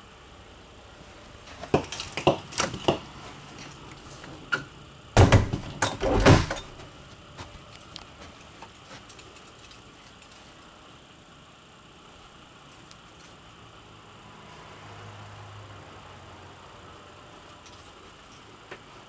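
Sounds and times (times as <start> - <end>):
door rattling knocks: 5.2 - 6.9.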